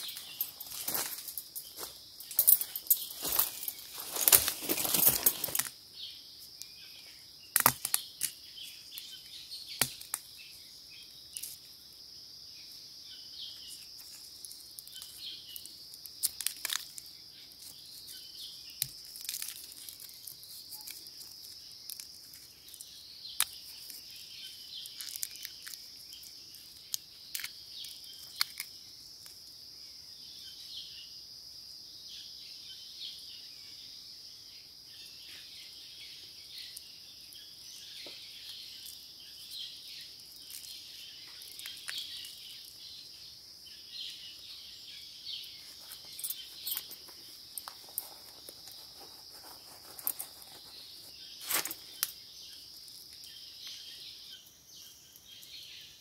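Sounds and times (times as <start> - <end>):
dry leaves handled: 0.0 - 5.7, 13.9 - 28.7, 45.6 - 52.1
insect chorus: 0.0 - 56.0
fungus torn from bark: 7.5 - 8.4, 9.7 - 10.4, 14.7 - 24.2, 24.8 - 29.4, 51.4 - 52.2.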